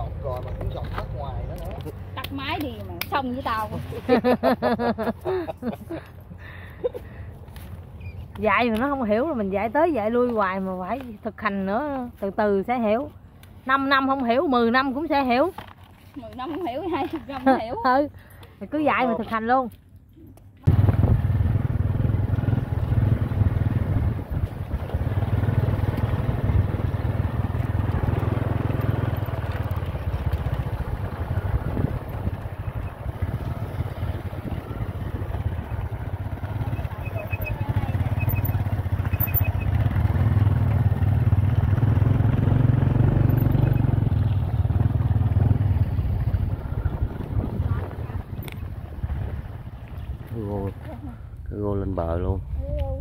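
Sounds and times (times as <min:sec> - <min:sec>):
wind rumbling on microphone: 0:20.7 - 0:39.6, 0:44.0 - 0:51.5
motorbike engine running: 0:20.7 - 0:49.6.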